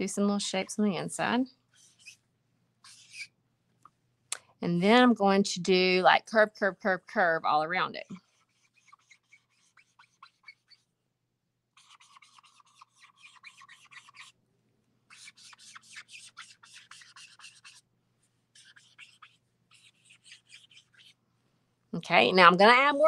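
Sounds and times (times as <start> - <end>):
marker scratching on paper: 1.7 - 2.2, 2.8 - 3.4, 7.9 - 10.9, 11.8 - 14.4, 15.1 - 17.8, 18.5 - 21.2.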